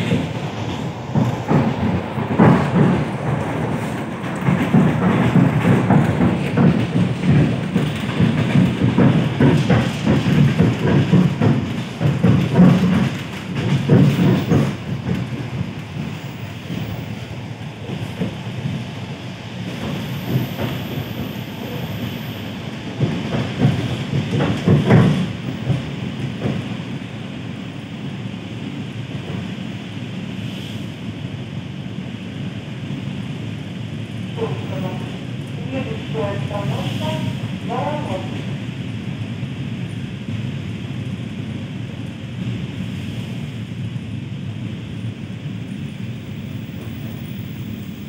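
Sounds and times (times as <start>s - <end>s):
train rumble inside car: 0.0s - 48.0s
wheels clattering over rail joints: 1.0s - 17.0s.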